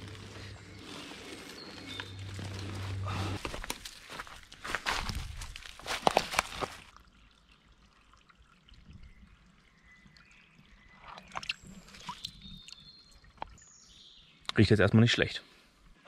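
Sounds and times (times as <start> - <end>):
footsteps on stones and leaves: 0.0 - 7.0
stream trickling: 3.4 - 14.5
water splashing into pouch: 5.2 - 7.0.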